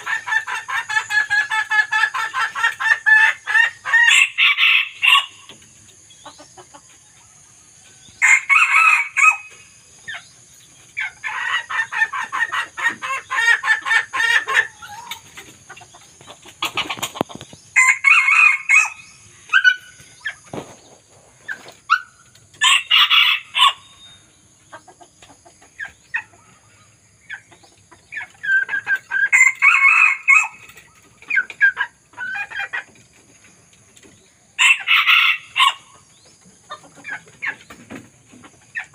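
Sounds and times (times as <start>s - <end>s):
roosters crowing: 0.0s - 5.5s, 7.5s - 9.8s, 17.7s - 20.7s, 22.6s - 24.1s, 28.4s - 32.8s, 34.6s - 36.0s.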